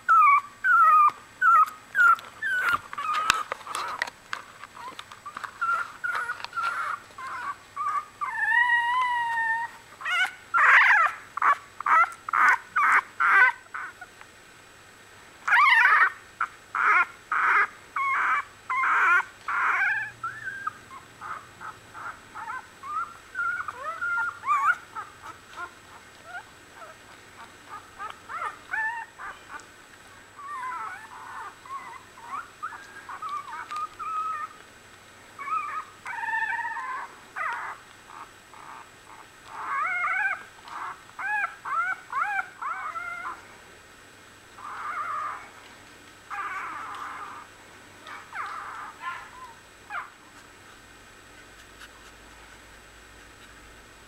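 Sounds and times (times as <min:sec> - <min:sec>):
puppies crying and whimpering: 0:00.0 - 0:04.1, 0:04.7 - 0:14.1, 0:15.4 - 0:29.7, 0:30.3 - 0:34.6, 0:35.4 - 0:43.4, 0:44.6 - 0:45.6, 0:46.3 - 0:50.4.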